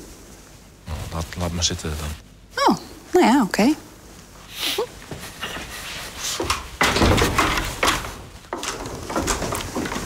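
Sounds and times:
footsteps on wood: 7.3 - 10.0.

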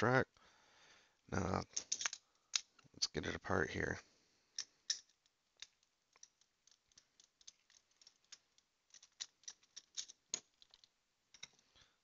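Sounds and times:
screwdriver metal clicks and scrapes: 4.6 - 11.6.

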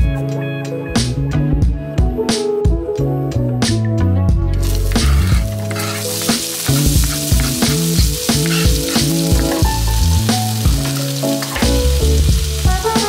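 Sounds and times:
music with bass and steady beat: 0.0 - 13.0
food sizzling in a pan: 4.6 - 13.0
stirring in a pan: 4.6 - 13.0.

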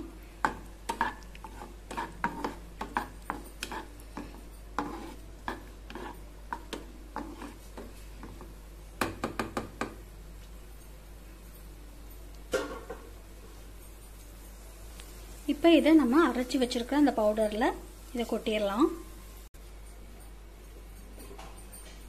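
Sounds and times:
spatula knocking and scraping pan: 0.0 - 10.0.

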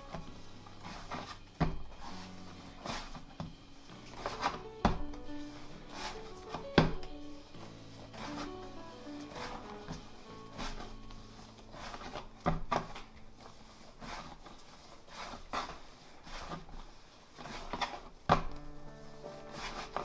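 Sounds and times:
faint background music: 0.0 - 20.0
soft rubbing: 0.0 - 20.0.

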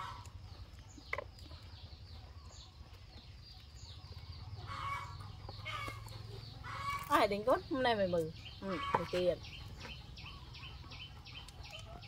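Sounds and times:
fowl clucking: 4.6 - 7.0, 8.6 - 10.0.

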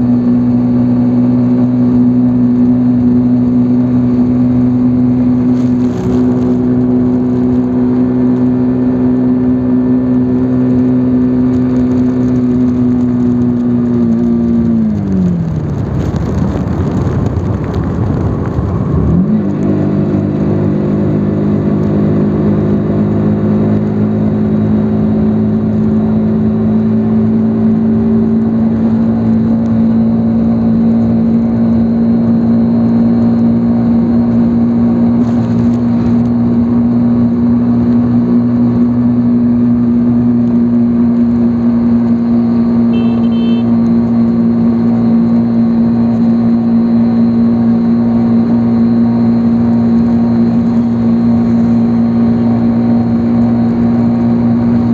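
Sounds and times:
motorcycle engine droning: 0.0 - 54.9.

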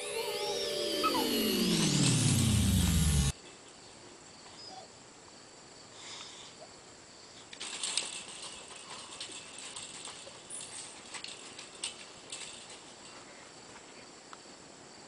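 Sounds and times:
electronic downward sweep: 0.0 - 3.3
chain-link fence rattling: 7.4 - 13.8.

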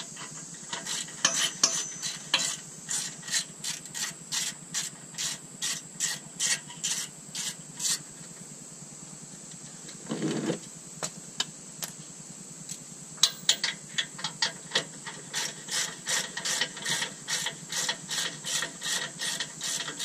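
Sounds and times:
ratchet wrench rasping: 0.7 - 8.0, 13.2 - 20.0.

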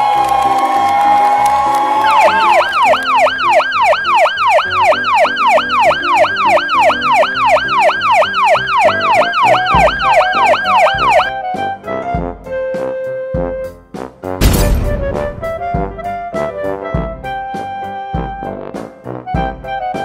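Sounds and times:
emergency siren yelping: 1.7 - 11.3.

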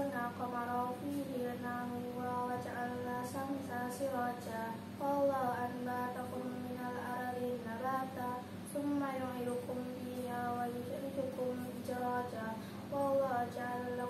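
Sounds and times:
faint steady hum: 0.0 - 14.0
girl chanting melodically: 0.0 - 14.0
breath: 12.6 - 12.9.

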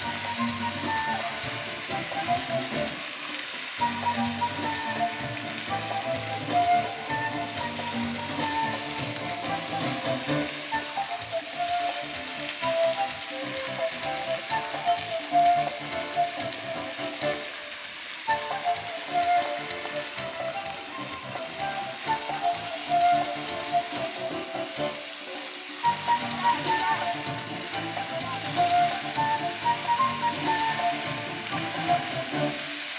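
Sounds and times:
melody playing: 0.0 - 3.0, 3.8 - 17.5, 18.3 - 25.2
fountain water splashing: 0.0 - 32.9.

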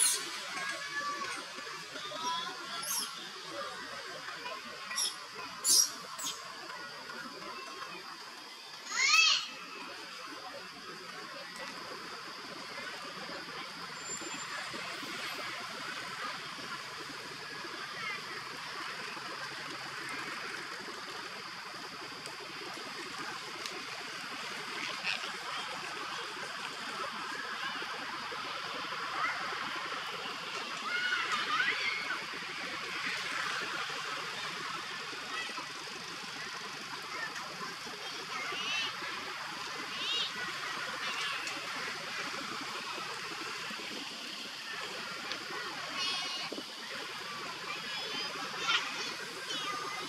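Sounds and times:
high warbling calls: 0.0 - 0.6, 2.3 - 3.4, 4.8 - 6.6
outdoor hiss: 0.0 - 50.0.

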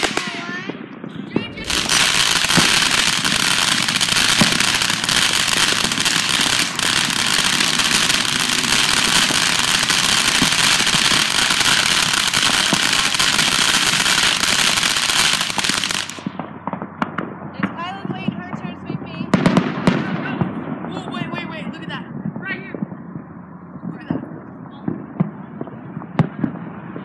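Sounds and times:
firework hissing rush: 0.0 - 0.5, 1.3 - 16.3.

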